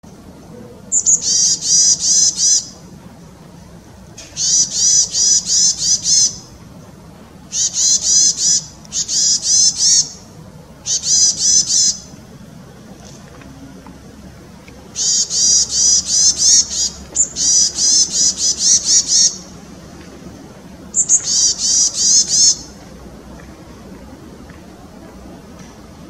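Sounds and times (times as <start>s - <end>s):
bird calling high notes: 14.9s - 19.6s, 20.9s - 22.8s.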